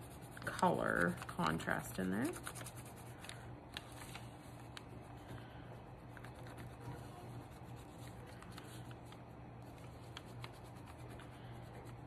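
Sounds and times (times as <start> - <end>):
crayon rubbing on paper: 2.2 - 3.2.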